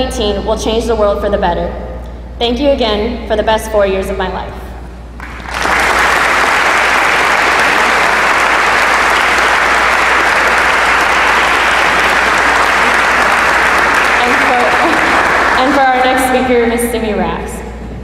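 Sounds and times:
audience applauding: 5.2s - 16.1s.

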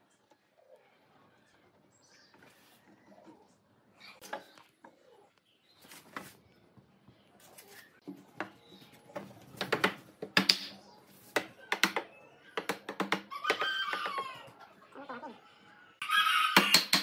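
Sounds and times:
wooden parts and tools knocking: 8.0s - 14.4s.

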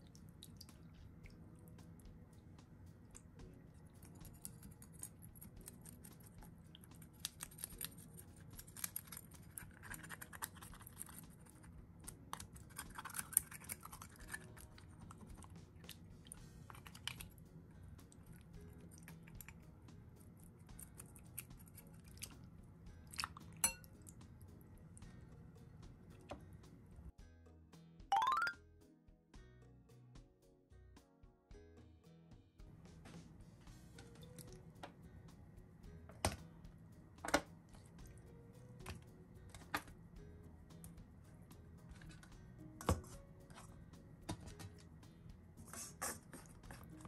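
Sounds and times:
wet scratching: 4.0s - 11.8s, 12.4s - 17.4s, 45.6s - 47.0s.

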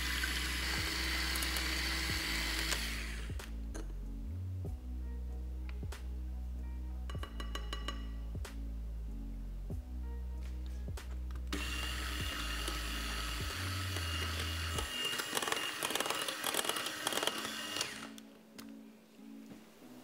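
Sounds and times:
electric hand mixer whining: 0.0s - 3.4s, 11.5s - 18.2s.

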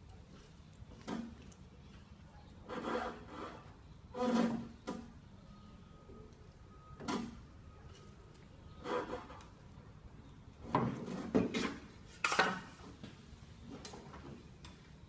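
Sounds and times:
short scraping knocks: 2.7s - 5.1s.

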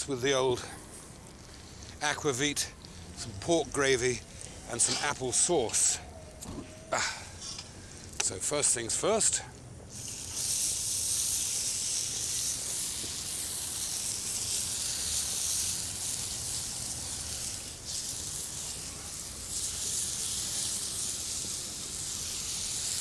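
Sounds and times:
pan sizzling: 9.9s - 23.0s.

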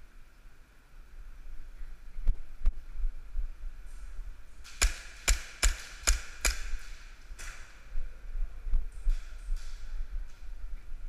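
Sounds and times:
airsoft pistol shots cracking: 4.6s - 7.6s.

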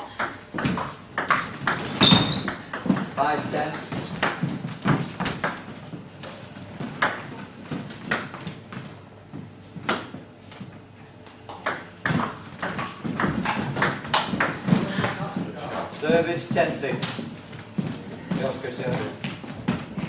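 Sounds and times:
ball bouncing on table: 0.2s - 5.6s, 11.5s - 15.2s.

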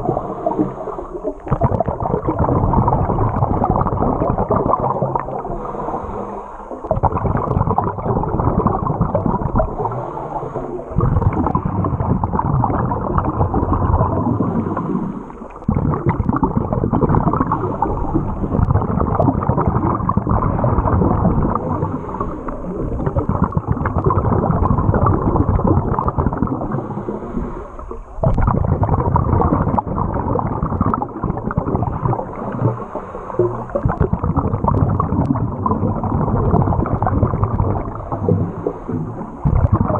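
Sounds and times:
faint hiss: 0.0s - 1.5s, 5.2s - 6.9s, 9.6s - 11.6s, 14.2s - 15.7s, 21.5s - 23.2s, 26.6s - 28.2s, 32.0s - 33.9s, 37.8s - 39.5s
underwater bubbling and gurgling: 0.0s - 39.9s.

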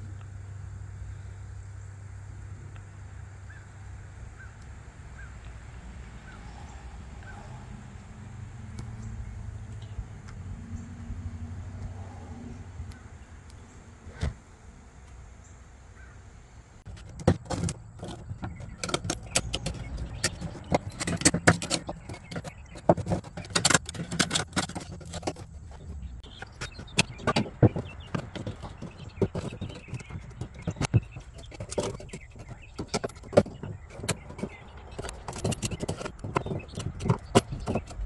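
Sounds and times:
metallic clicking and scraping: 16.9s - 38.0s.

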